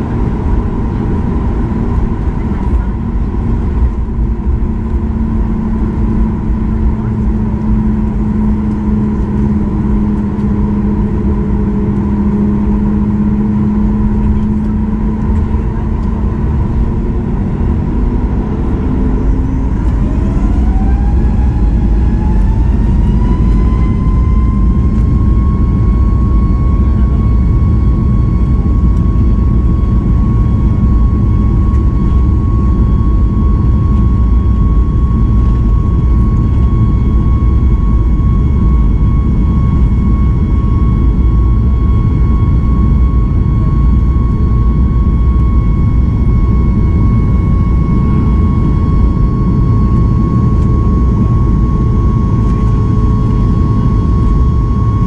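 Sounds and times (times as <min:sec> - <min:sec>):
heavy rumble of jet: 0:00.0 - 0:55.0
jet engine whine: 0:00.0 - 0:55.0.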